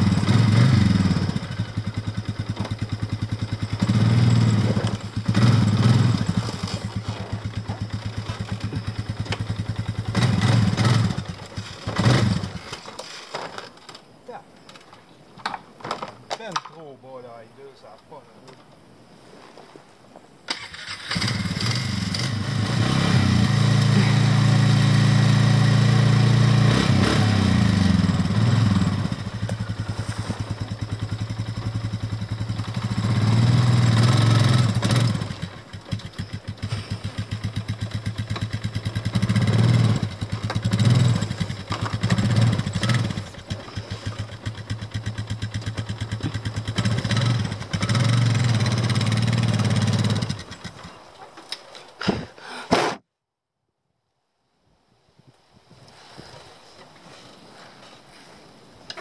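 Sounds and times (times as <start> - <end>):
atv engine revving: 0.0 - 12.8, 20.5 - 51.1.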